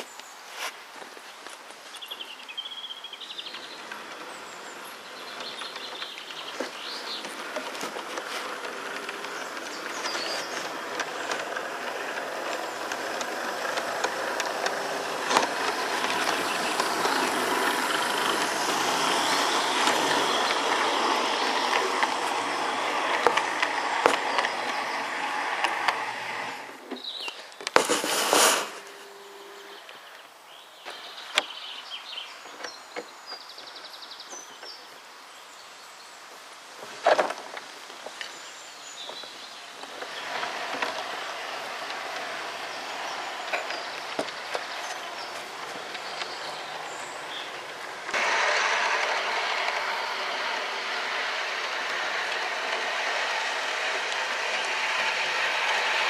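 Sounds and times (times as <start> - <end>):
wheels clicking over rail joints: 0.0 - 35.2, 36.3 - 56.0
model train running on track: 1.4 - 27.0, 27.7 - 31.2, 36.2 - 56.0
short loud rushing noise: 27.8 - 29.8.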